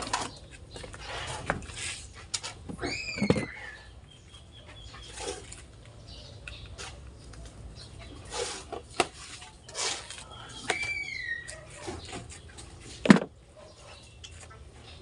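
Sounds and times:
hand tool scraping sand: 8.2 - 10.2
faint bird calls: 9.7 - 12.1.

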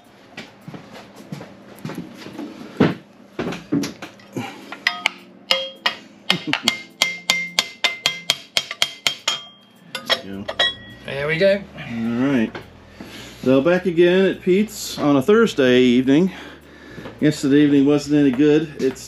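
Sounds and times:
metal tapping on metal plate: 4.8 - 11.0.

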